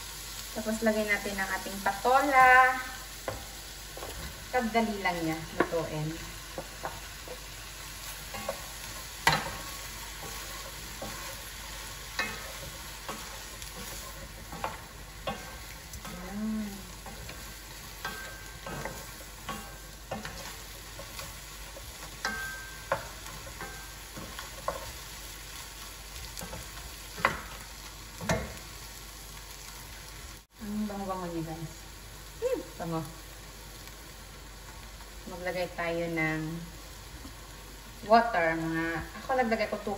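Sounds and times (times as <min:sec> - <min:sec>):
food sizzling in a frying pan: 0:00.0 - 0:39.9
spatula scraping a pan: 0:05.5 - 0:28.8.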